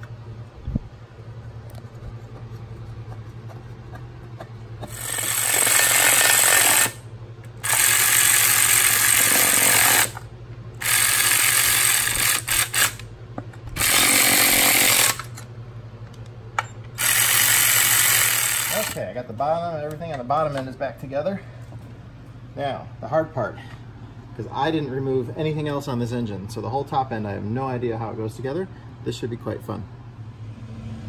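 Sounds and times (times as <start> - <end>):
impact driver running bolts: 4.8 - 15.5, 16.6 - 19.0.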